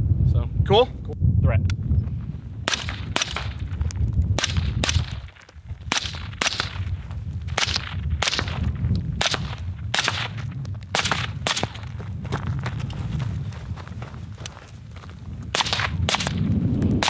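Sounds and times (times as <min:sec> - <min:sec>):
suppressed rifle shots: 0:02.7 - 0:03.6, 0:04.4 - 0:06.9, 0:07.5 - 0:11.8.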